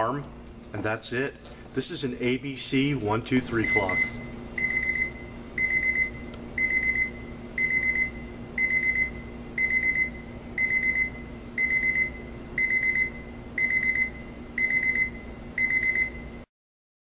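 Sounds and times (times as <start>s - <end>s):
alarm clock beeping: 3.6s - 16.2s.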